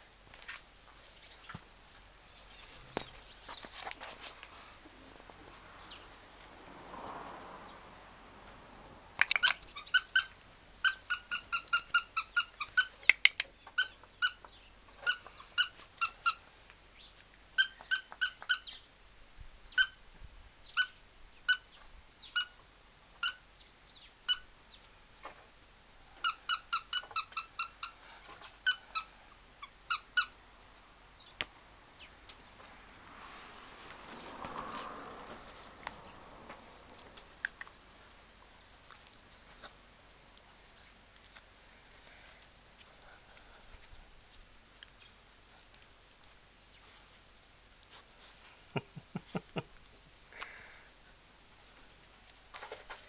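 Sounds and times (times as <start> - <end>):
squeaky dog toy squeaking: 9.2 - 16.4, 17.6 - 18.7, 19.8 - 20.0, 20.8 - 21.7, 22.4 - 22.6, 23.2 - 23.4, 24.3 - 24.5, 26.2 - 28.0, 28.6 - 30.4.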